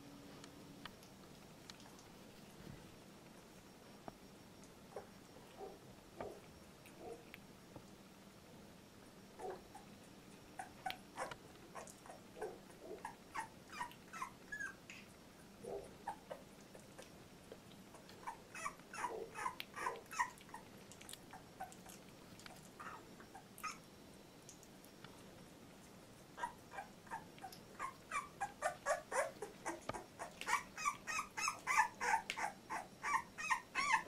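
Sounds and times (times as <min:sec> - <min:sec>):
puppy whimpering and squeaking: 0:10.6 - 0:15.0, 0:16.0 - 0:16.8, 0:17.9 - 0:20.7, 0:21.3 - 0:23.9, 0:26.4 - 0:34.0.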